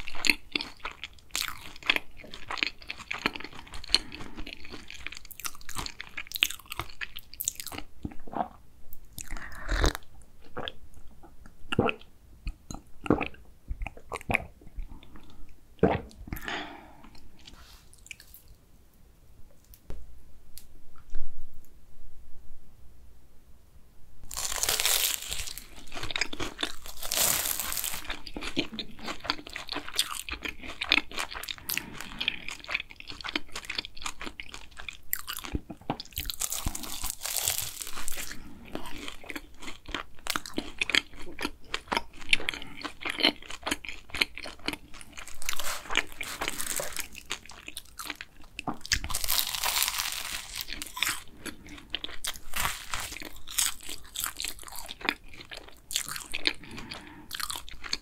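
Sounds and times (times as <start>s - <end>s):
crunchy chewing: 0.0s - 7.9s, 24.3s - 58.0s
pastry crust crunching with bites: 24.3s - 58.0s.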